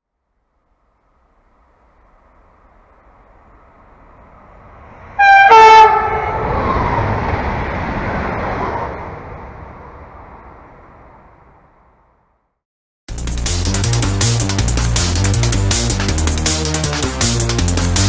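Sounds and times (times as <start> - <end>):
wheels rushing on rail: 0.1 - 12.5
electric train passing: 0.2 - 12.4
two-note train horn: 5.2 - 6.5.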